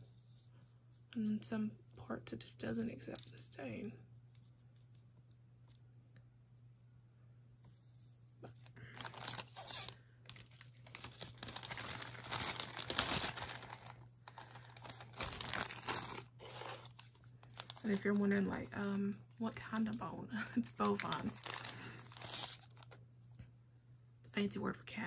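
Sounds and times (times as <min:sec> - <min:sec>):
plastic bags crinkling: 0:08.8 - 0:23.0.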